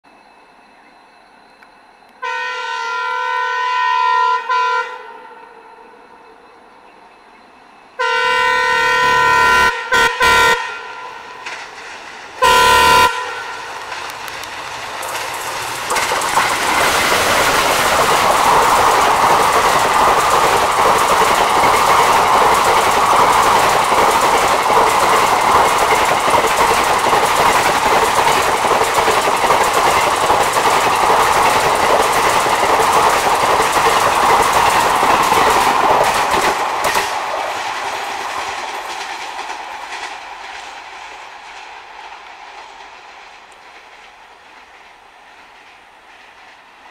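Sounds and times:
locomotive horn blast: 2.2 - 5.9, 8.0 - 11.4, 12.4 - 13.8
train wheels clattering: 11.3 - 46.9.

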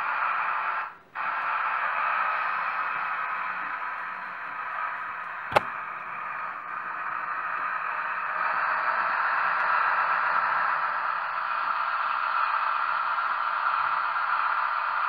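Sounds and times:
model train running: 0.0 - 15.0
sharp click: 5.5 - 5.8.

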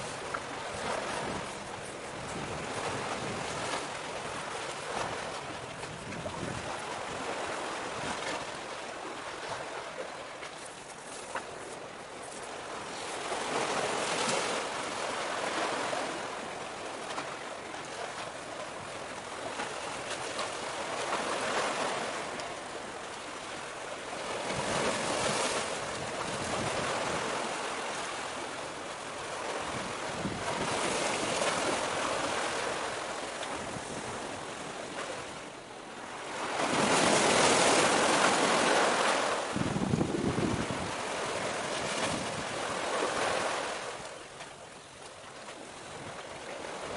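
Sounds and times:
wind buffeting microphone: 0.0 - 8.4, 29.4 - 32.4, 39.4 - 43.3
sea waves against breakwater: 0.0 - 46.9.

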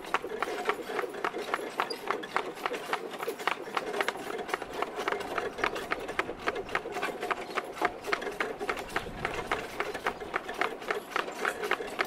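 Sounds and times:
horse hooves clip-clopping: 0.0 - 12.0.

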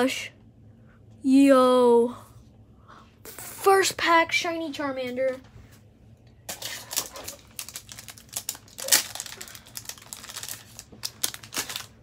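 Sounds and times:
cards and plastic rustling: 6.5 - 12.0.

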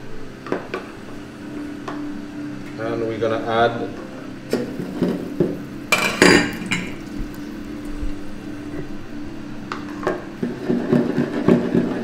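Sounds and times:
metal pan lid clanking: 5.9 - 7.0.

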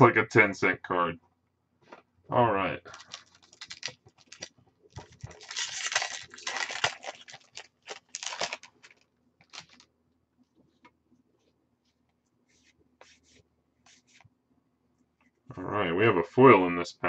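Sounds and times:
cards ticking and rustling: 2.9 - 9.9
foil wrapper crinkling and tearing: 2.9 - 9.9.

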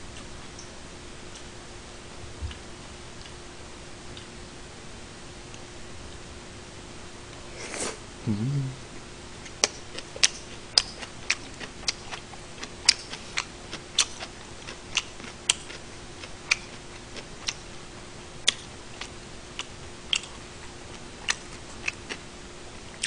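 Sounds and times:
faint steady hum: 0.0 - 23.0
person chewing food: 9.6 - 17.6, 18.5 - 22.2.

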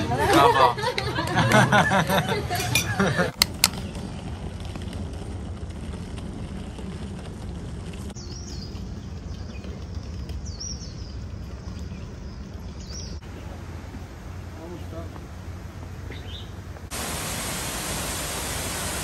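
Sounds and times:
steady low rumble: 2.1 - 19.0
bird chirping: 8.2 - 13.2, 16.1 - 16.6.

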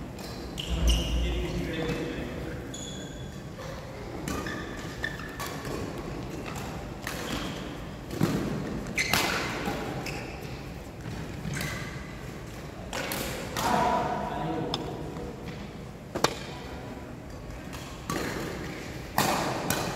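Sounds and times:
shoe squeaks: 2.7 - 3.4
racket striking shuttlecock: 19.1 - 19.9.

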